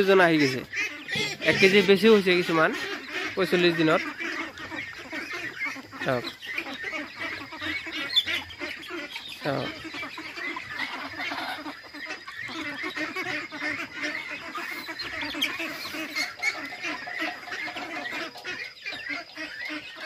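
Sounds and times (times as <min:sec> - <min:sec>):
ducks quacking: 0:00.0 - 0:20.0.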